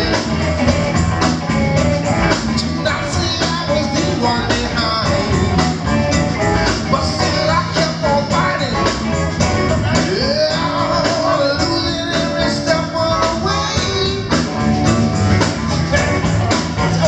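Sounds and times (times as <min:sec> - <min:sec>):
drum kit: 0:00.0 - 0:17.0
electric bass: 0:00.0 - 0:17.0
keyboard: 0:00.0 - 0:17.0
man singing into a microphone: 0:02.5 - 0:05.8, 0:06.6 - 0:09.1, 0:09.9 - 0:14.5.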